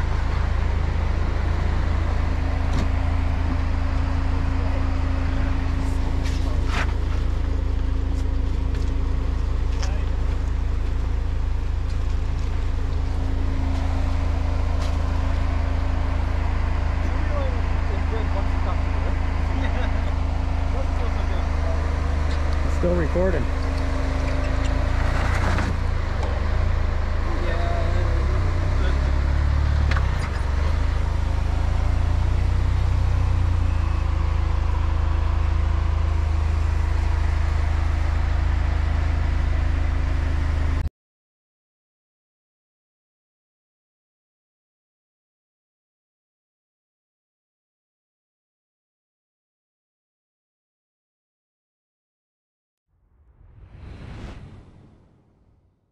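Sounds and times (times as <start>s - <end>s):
engine humming steadily: 0.0s - 40.9s.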